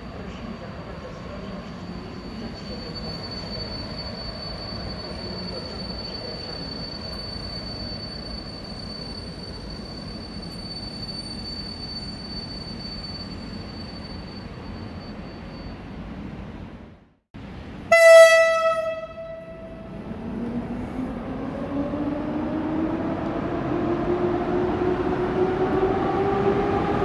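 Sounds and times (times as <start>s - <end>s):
low train rumble: 0.0s - 27.0s
train wheels squealing: 0.1s - 16.0s.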